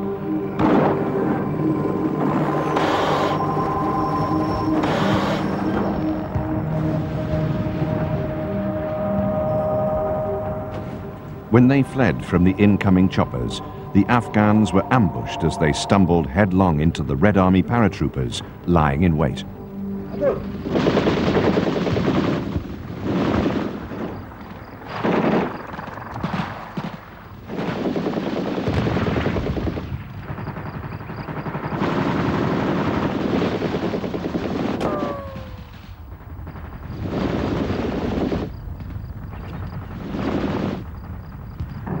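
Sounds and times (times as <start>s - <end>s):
short falling whine: 0.0s - 17.4s.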